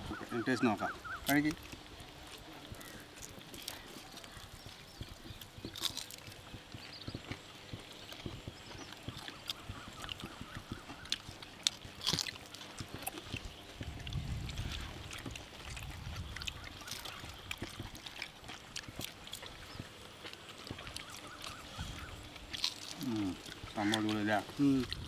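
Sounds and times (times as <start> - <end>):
people chewing and lip smacking: 0.0 - 25.0
low rumbles: 13.8 - 18.0.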